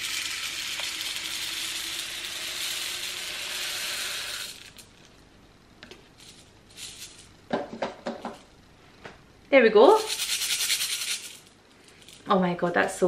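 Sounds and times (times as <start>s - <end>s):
small beads pouring into bottle: 0.0s - 4.9s.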